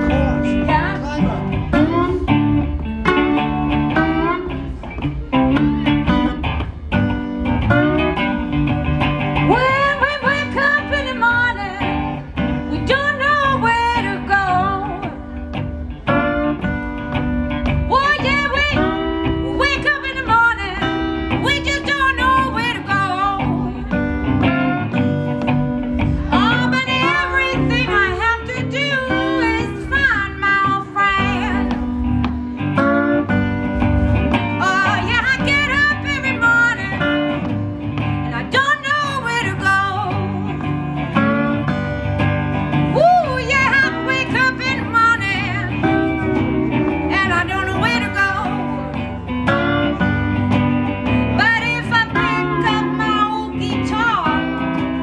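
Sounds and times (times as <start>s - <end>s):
cigar box guitar: 0.0s - 55.0s
electric guitar: 0.0s - 55.0s
woman singing: 9.4s - 15.6s, 17.8s - 24.7s, 26.3s - 32.3s, 34.6s - 41.6s, 42.8s - 49.2s, 51.2s - 55.0s.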